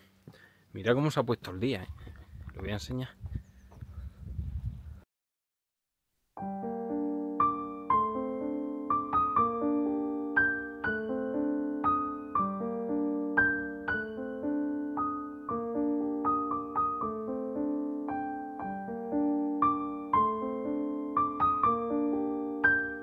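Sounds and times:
piano single notes ringing: 6.4 - 23.0.

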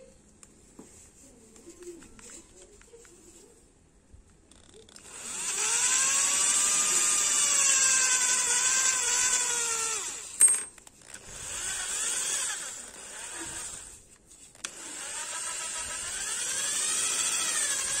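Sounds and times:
electric drill motor whine: 4.6 - 10.4, 11.0 - 14.0, 14.6 - 18.0.

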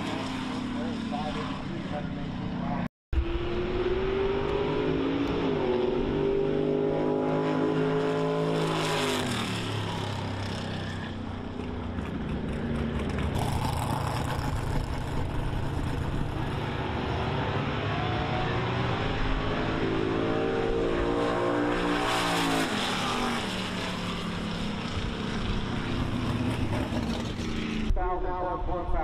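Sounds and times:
racing car engine at full throttle: 0.0 - 28.0.

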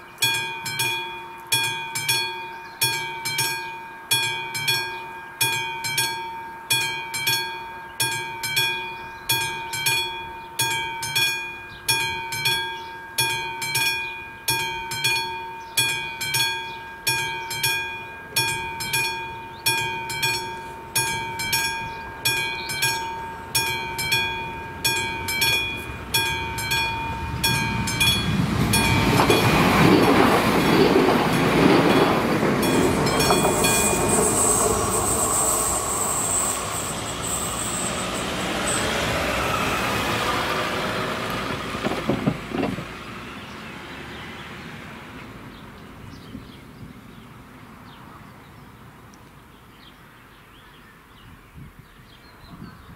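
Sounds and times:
level crossing bell ringing: 0.2 - 39.2
train wheel rumble: 17.2 - 44.0
high wheel squeal: 19.3 - 41.4.

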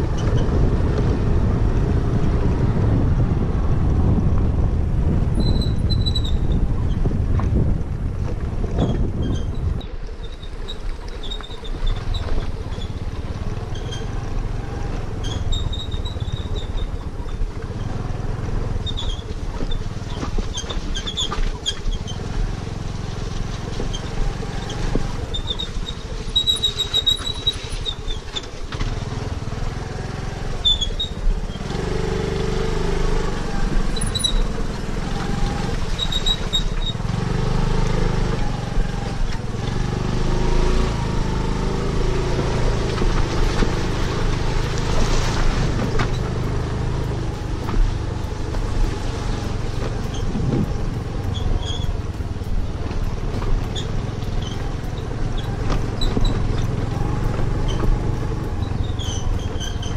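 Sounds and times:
scooter engine running: 0.0 - 59.9
high clicks and squeaks: 5.4 - 7.1, 8.8 - 13.0, 13.6 - 14.2, 15.2 - 17.4, 18.8 - 22.3, 23.7 - 29.0, 30.5 - 31.6, 33.9 - 34.6, 35.6 - 37.1, 45.7 - 59.9.

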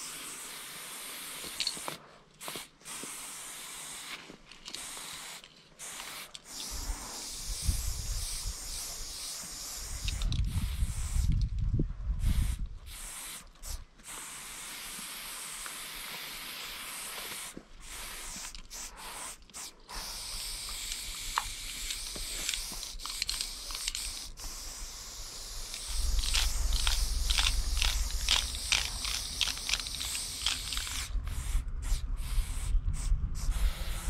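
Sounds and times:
spray paint can hissing: 0.0 - 11.6, 12.2 - 34.0.

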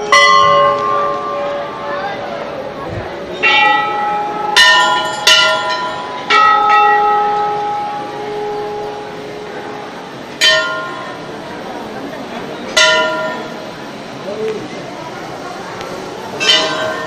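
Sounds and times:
temple bells ringing: 0.0 - 11.8, 12.7 - 13.8, 16.3 - 17.0.

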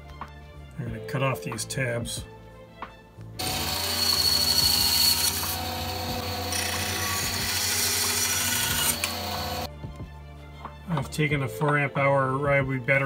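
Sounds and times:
band saw cutting plastic: 3.4 - 9.7.

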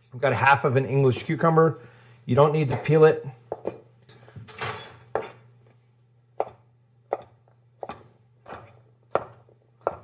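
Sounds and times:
knife chopping on cutting board: 6.4 - 10.0.

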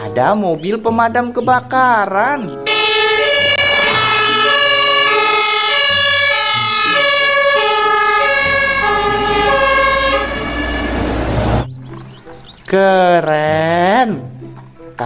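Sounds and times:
truck engine and tyre noise: 2.6 - 12.7
two-tone fire engine siren: 2.7 - 11.7.

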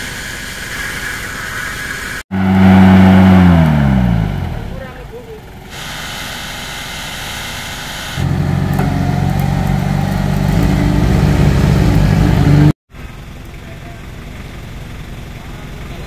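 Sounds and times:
vehicle engine running hard: 2.3 - 5.8, 8.2 - 16.0.

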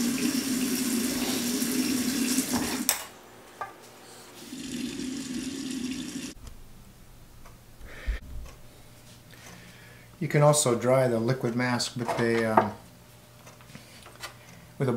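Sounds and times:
tap water running into sink: 0.0 - 2.9, 4.5 - 6.4.

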